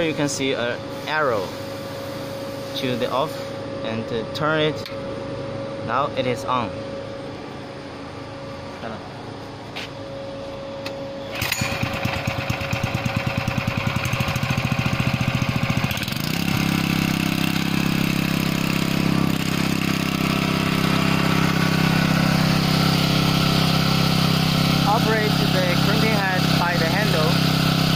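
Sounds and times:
gasoline engine starting and running: 10.8 - 27.9.

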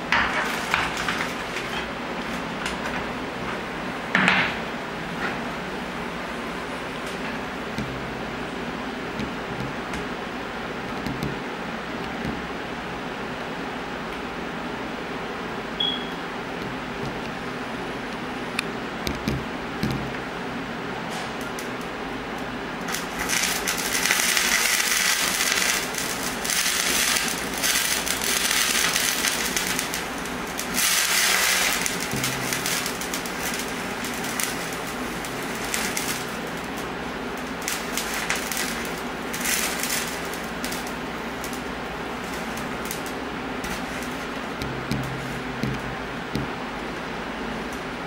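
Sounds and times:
chemical hissing and crackling: 0.0 - 2.5, 22.8 - 46.8.

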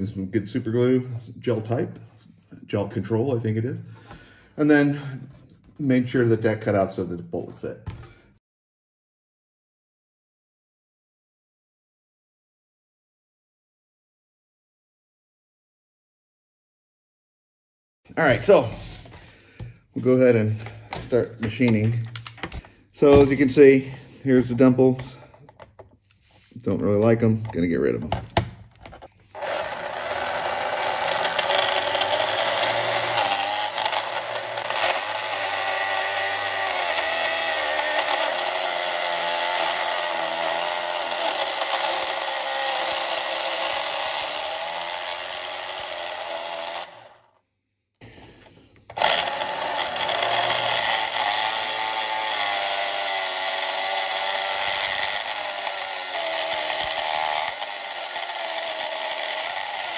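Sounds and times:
blade scraping plastic wheel: 28.9 - 47.2
electric motor whirring: 29.3 - 47.3, 48.9 - 59.9.

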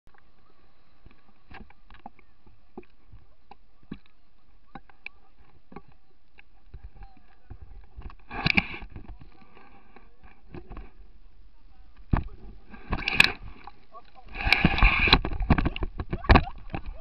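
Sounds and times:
wind noise: 6.6 - 17.0.

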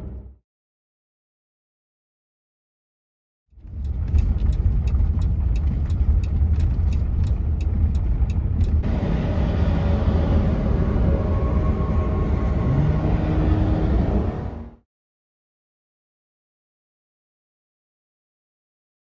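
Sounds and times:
turn signal ticking: 3.6 - 8.8
road and engine rumble in car: 3.6 - 14.8
low drone: 8.0 - 14.8.

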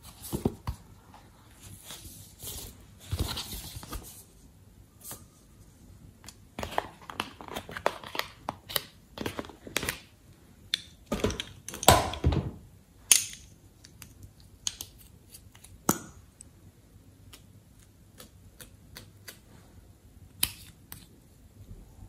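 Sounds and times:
plastic pens clicking and tapping: 13.1 - 16.1.

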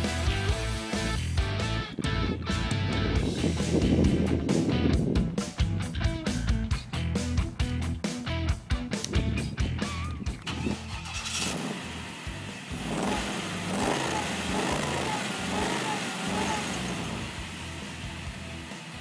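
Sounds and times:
music: 0.0 - 12.5, 17.2 - 19.0
car engine revving: 9.8 - 19.0.

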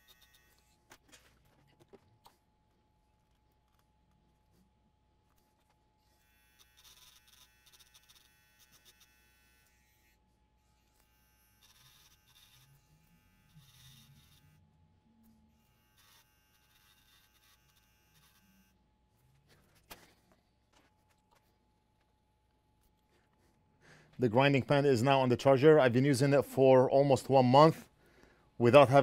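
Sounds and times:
grinding pen whining: 0.0 - 1.1, 5.2 - 18.8.

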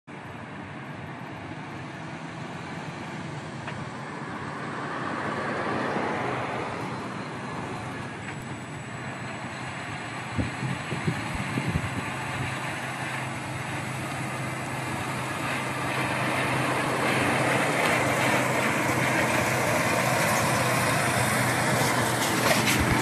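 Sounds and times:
truck diesel engine running: 6.8 - 23.0.

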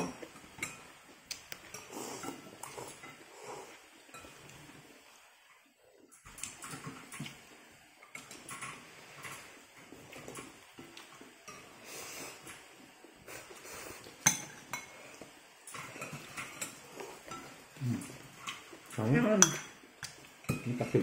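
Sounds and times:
utensils clinking on ceramic bowl: 15.6 - 19.8, 20.4 - 21.0.

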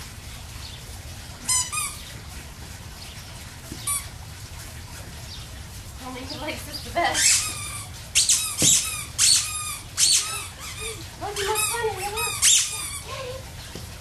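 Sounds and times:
squeaky dog toy squeaking: 1.5 - 2.0, 7.2 - 13.1.

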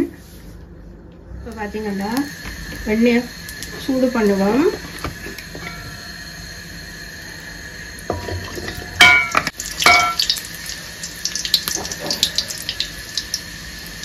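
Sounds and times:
butter sizzling in a pan: 8.0 - 14.0
metal ladle clanking on pan: 8.1 - 10.4.

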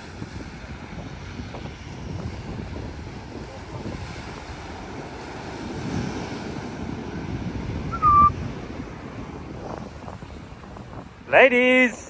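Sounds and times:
surf on rocky shore: 0.0 - 12.0
wind buffeting microphone: 0.0 - 12.0
short whistle-like call: 7.9 - 8.4.

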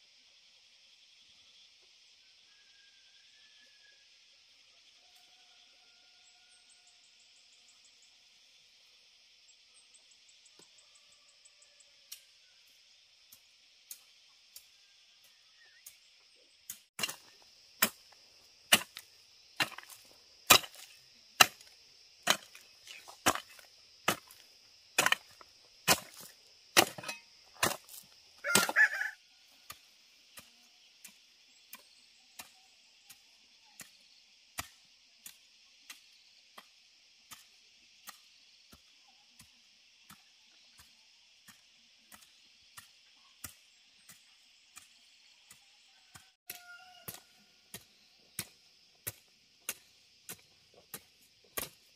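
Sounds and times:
rooster crowing: 5.0 - 6.9, 28.4 - 29.5, 45.9 - 47.5
blade chopping: 18.7 - 24.4, 25.0 - 28.8.

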